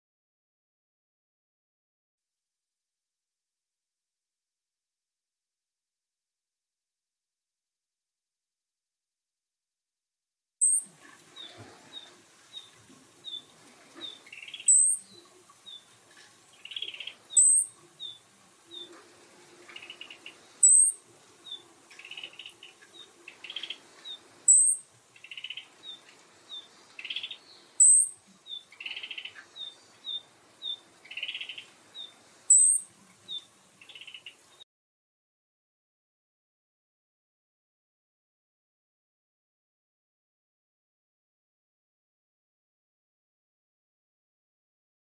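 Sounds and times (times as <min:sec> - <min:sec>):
songbird chirps and buzzy trills: 0:10.6 - 0:34.6
high sharp bird notes: 0:16.7 - 0:17.7, 0:19.8 - 0:21.0, 0:24.5 - 0:25.7, 0:27.0 - 0:28.1, 0:32.5 - 0:32.8.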